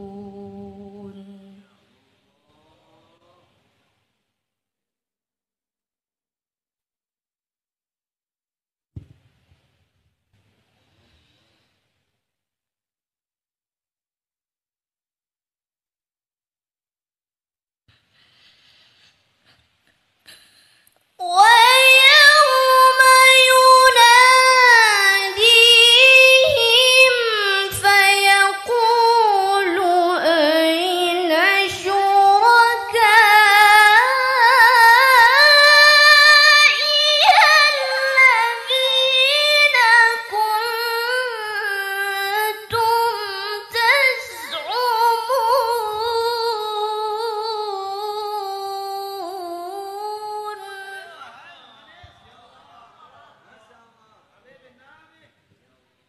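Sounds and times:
woman reciting melodically: 0.0 - 1.8, 21.2 - 51.3.

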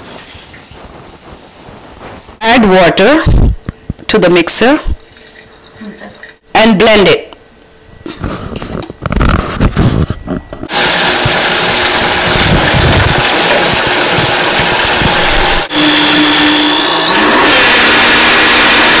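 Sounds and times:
blender motor grinding: 10.7 - 19.0.

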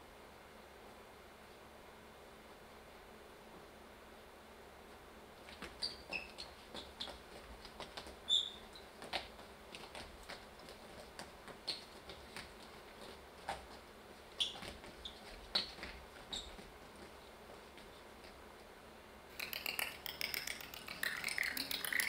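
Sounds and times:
sneakers squeaking on floor: 5.4 - 18.0
soft footfalls: 5.4 - 18.8.

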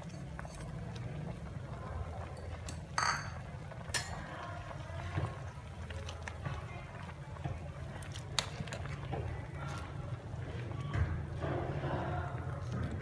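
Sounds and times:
utensil clinking on metal pot: 0.0 - 1.0, 2.3 - 4.3
pot boiling and bubbling: 0.0 - 13.0.

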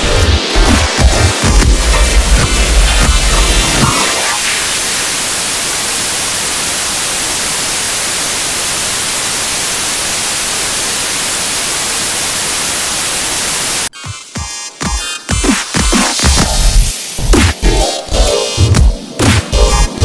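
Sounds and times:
television static hiss: 2.5 - 13.9.

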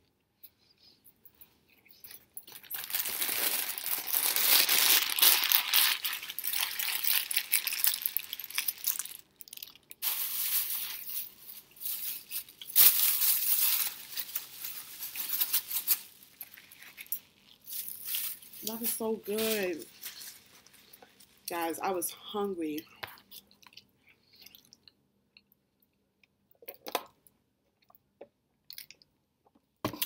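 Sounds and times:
wrapper crumpling: 2.1 - 21.6.

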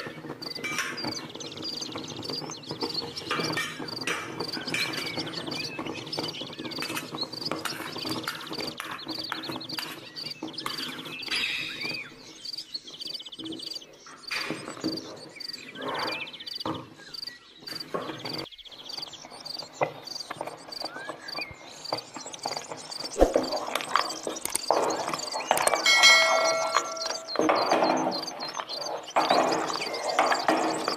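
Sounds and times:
bird chirps: 0.0 - 30.9.

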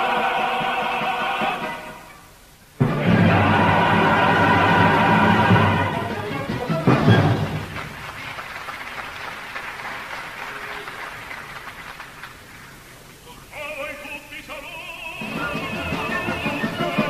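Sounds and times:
singing voice with vibrato: 0.0 - 6.2, 13.2 - 17.0
chorus and orchestra: 0.0 - 8.4, 14.8 - 17.0
audience applauding: 3.0 - 13.2.

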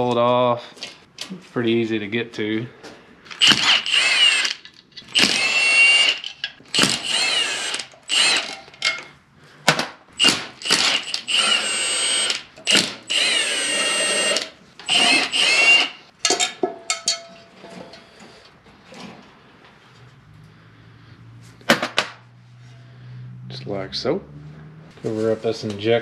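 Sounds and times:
impact wrench motor whine: 3.4 - 8.7, 10.2 - 16.1.

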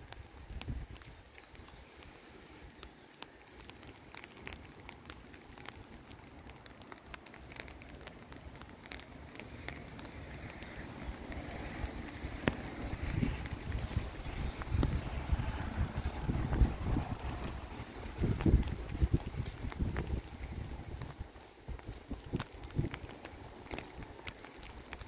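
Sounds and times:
wind rumble on microphone: 0.0 - 2.8, 8.9 - 25.0
light rain falling: 0.0 - 25.0
raindrops tapping: 0.0 - 25.0.

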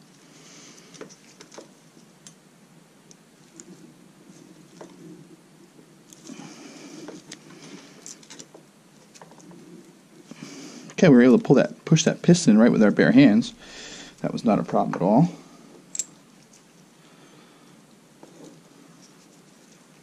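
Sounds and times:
soft rubbing: 3.4 - 16.9, 18.2 - 20.0.

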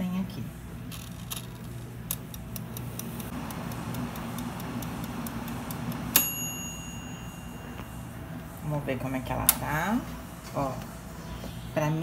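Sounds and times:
air fryer humming: 0.0 - 12.0
timer dial ticking: 2.2 - 6.8
timer bell ding: 6.1 - 8.0.

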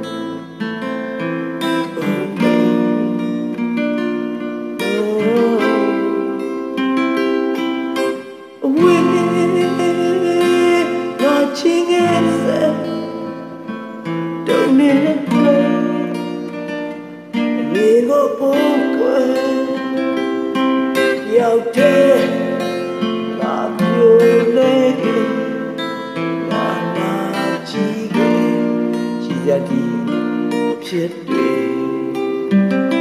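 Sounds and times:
fingerstyle acoustic guitar: 0.0 - 33.0.

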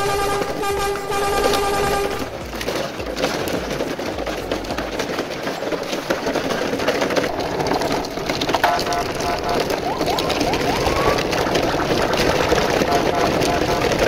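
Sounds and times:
toy truck wheels rolling on gravel: 0.0 - 14.0
held pitched tone: 8.6 - 14.0.

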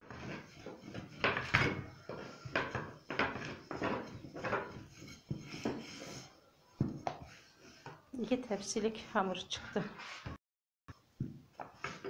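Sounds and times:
rolling pin rolling dough: 0.0 - 8.7.

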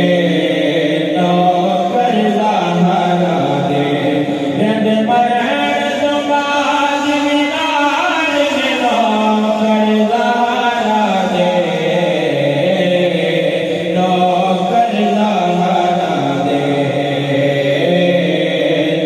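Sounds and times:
men singing devotional song: 0.0 - 19.0.

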